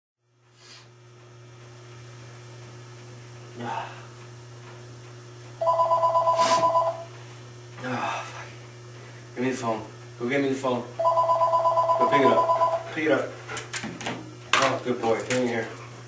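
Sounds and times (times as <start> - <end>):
cordless phone ringing: 5.6 - 7.1, 11.0 - 12.9.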